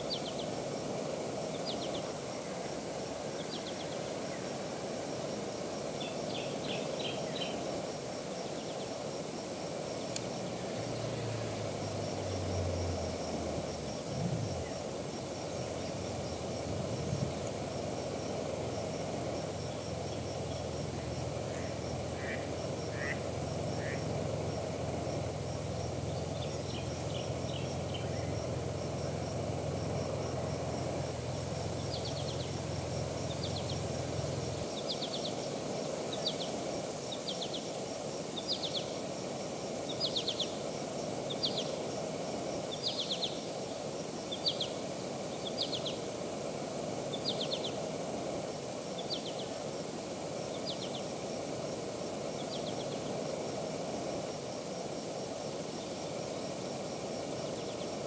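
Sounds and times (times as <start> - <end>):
background hiss: 0.0 - 58.0
high insect-like whine: 0.0 - 58.0.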